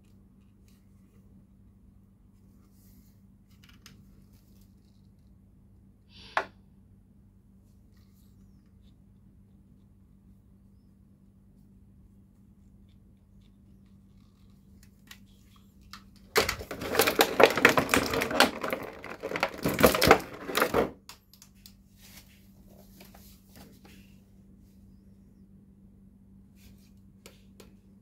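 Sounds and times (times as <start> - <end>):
plastic blister tray crackling: 14.4 - 20.9.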